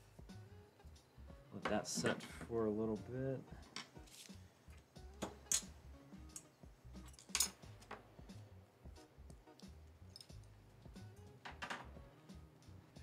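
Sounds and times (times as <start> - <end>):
hand tools clicking and clacking: 1.6 - 2.5, 3.6 - 8.0, 10.1 - 10.5.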